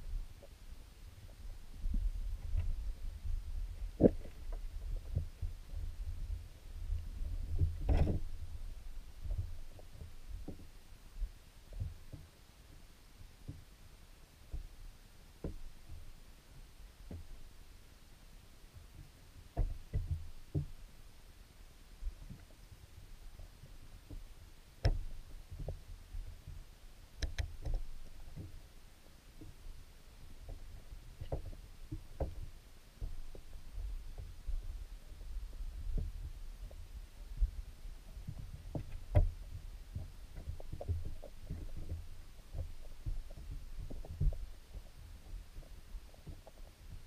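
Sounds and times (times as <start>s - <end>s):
low steady rumble: 0.0s - 47.0s
muffled underwater knocks: 38.2s - 47.0s.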